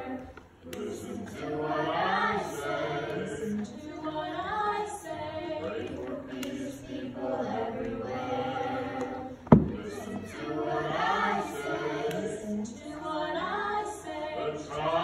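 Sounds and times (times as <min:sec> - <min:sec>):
children singing in unison: 0:00.0 - 0:15.0.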